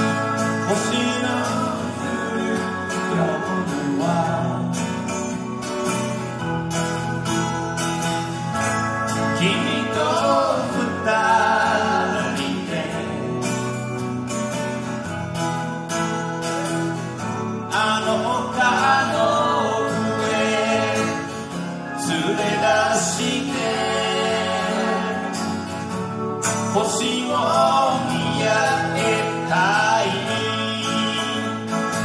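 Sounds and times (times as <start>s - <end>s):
person singing: 0.0s - 5.1s, 26.7s - 32.0s
acoustic guitar strumming: 0.0s - 32.0s
electric guitar: 0.0s - 32.0s
keyboard: 0.0s - 32.0s.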